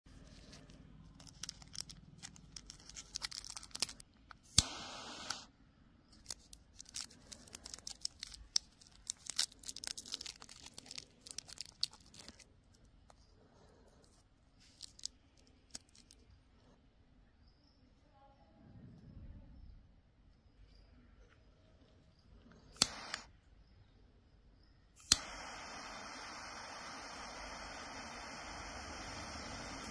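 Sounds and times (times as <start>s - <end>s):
plastic wrapper crinkling: 0.2s - 4.5s, 6.1s - 13.3s, 13.9s - 16.3s
torch lighter hissing: 4.4s - 5.5s, 22.7s - 23.4s, 25.0s - 29.9s
lighter click: 4.5s - 5.5s, 22.8s - 23.3s, 25.0s - 29.9s.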